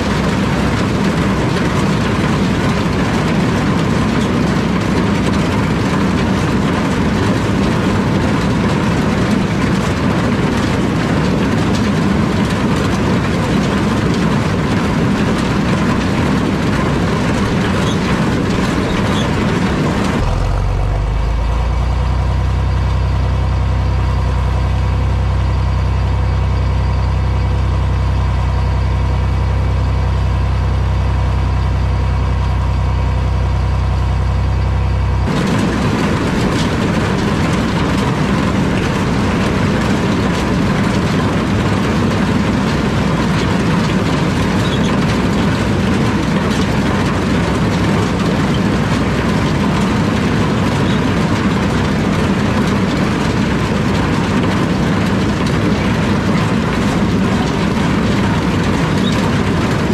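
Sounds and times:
corn picker rattling and clattering: 0.0s - 20.6s, 35.2s - 59.9s
diesel tractor engine running: 0.0s - 59.9s.

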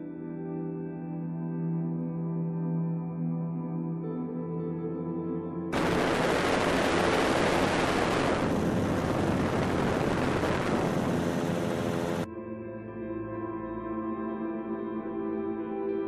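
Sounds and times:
soft ambient music: 0.0s - 10.6s, 12.2s - 16.0s
loud rushing noise: 5.8s - 12.3s.

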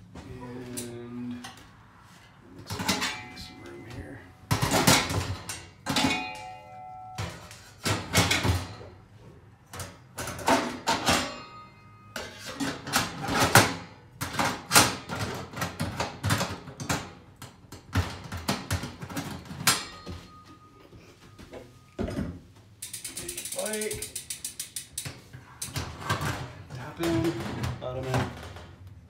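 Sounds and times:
metal brackets clattering on rails: 2.6s - 9.0s, 9.7s - 17.1s, 17.8s - 20.8s, 22.8s - 28.6s.

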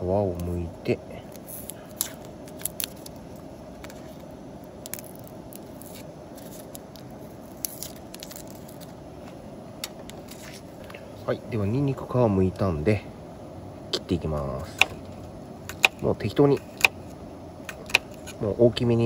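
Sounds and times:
background hiss: 0.0s - 19.0s
garlic skins crinkling: 1.2s - 9.0s.

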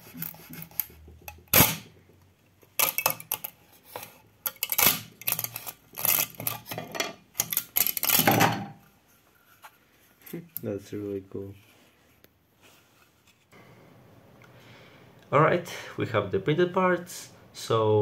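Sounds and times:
plastic part cracking off metal: 0.2s - 2.0s, 2.6s - 8.7s.

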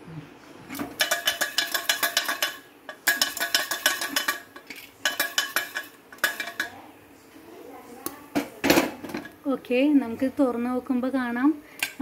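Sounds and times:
pressure cooker lid rattling: 0.9s - 6.7s.

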